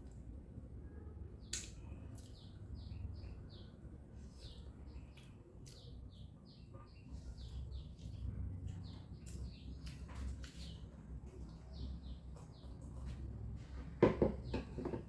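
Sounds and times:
small bird chirping: 1.4 - 13.2
soft chewing clicks: 4.9 - 6.3, 7.4 - 13.2.

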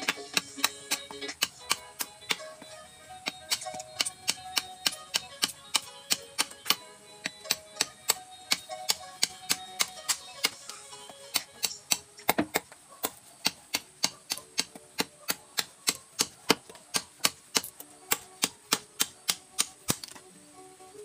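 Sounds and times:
knife chopping on wood: 11.3 - 20.2.

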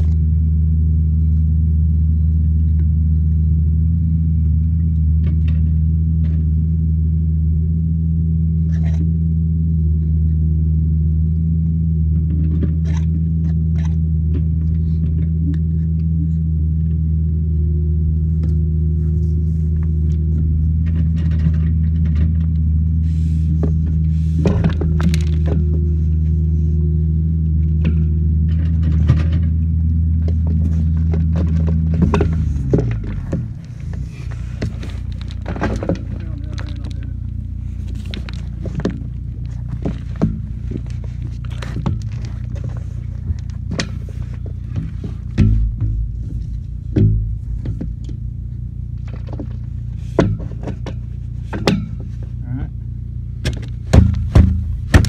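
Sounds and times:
diesel engine running: 0.0 - 55.0
plastic pipe knocking and clicking: 38.1 - 48.2, 49.2 - 52.2, 53.4 - 55.0.

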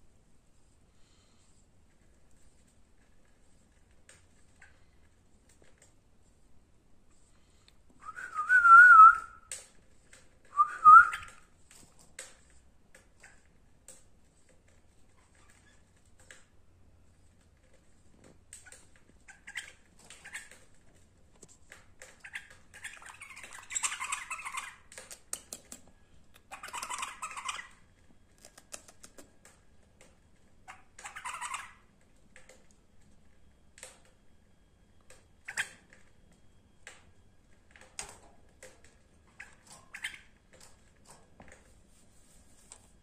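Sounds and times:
clicks and taps on cage: 24.9 - 27.1
bulbul chirping and calling: 26.5 - 27.7, 30.7 - 31.8.

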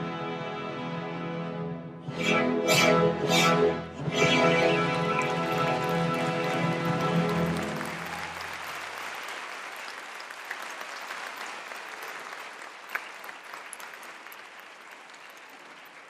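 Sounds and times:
audience applauding: 4.7 - 16.0.

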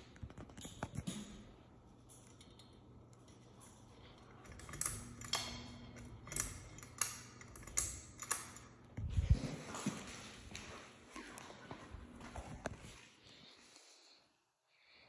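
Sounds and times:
faint steady hum: 0.0 - 15.0
fan pull-chain switch clicking: 4.4 - 9.0.

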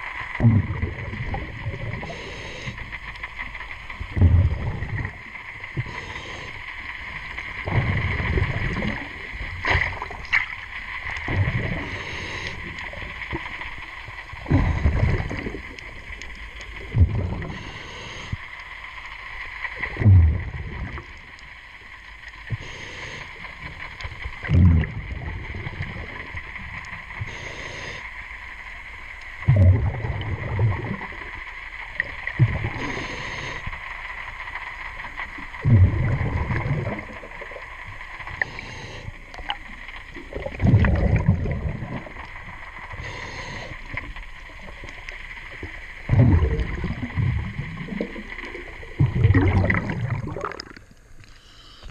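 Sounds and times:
rumbling bubbles: 0.0 - 18.6, 19.3 - 27.7, 28.4 - 51.3
faint hum: 0.0 - 51.9
regulator inhale hiss: 1.8 - 3.7, 4.6 - 7.4, 11.1 - 13.4, 17.3 - 20.0, 22.2 - 24.0, 26.0 - 28.9, 32.6 - 35.5, 37.9 - 40.5, 42.2 - 46.1, 50.8 - 51.9.

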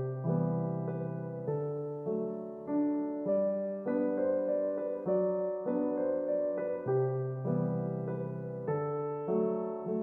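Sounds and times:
keyboard piano music: 0.0 - 10.0.

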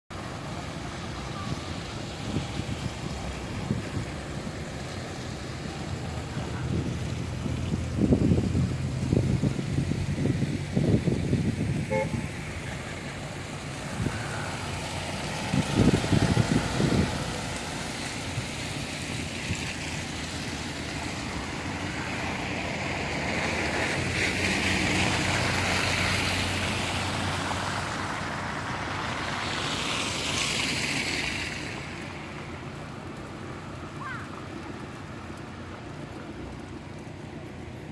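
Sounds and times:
car tyres hissing on slush: 0.2 - 37.9
wind buffeting microphone: 6.0 - 20.5.

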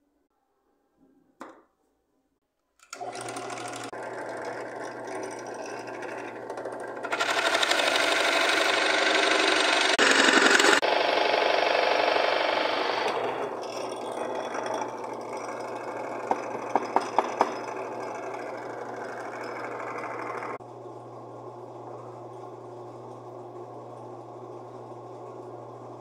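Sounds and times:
drill press boring into wood: 2.9 - 20.6.

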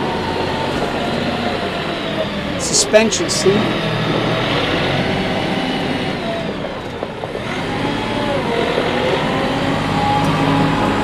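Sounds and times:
diesel tractor engine running: 0.0 - 11.0.

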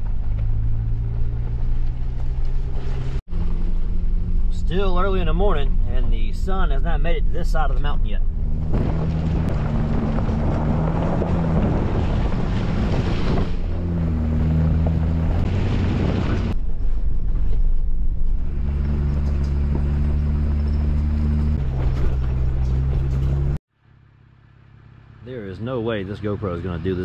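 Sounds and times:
engine running: 0.0 - 27.0
tyre and wind rush: 8.2 - 23.2.

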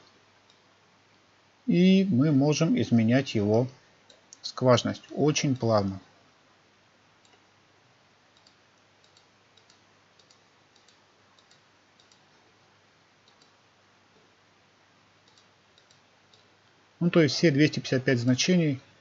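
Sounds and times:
faint computer mouse clicks: 7.2 - 7.5, 8.4 - 12.3, 13.2 - 13.6, 15.2 - 16.6.

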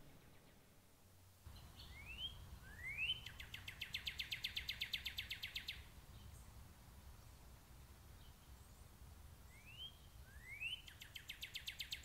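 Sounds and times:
songbird whistles and trill: 1.5 - 6.3, 9.5 - 12.0.

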